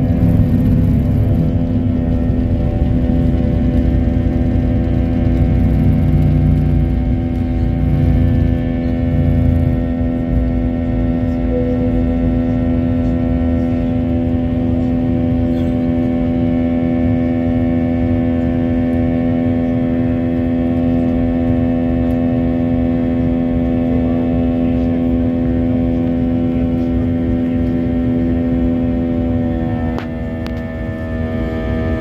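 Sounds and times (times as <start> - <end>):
airliner engines droning: 0.0 - 32.0.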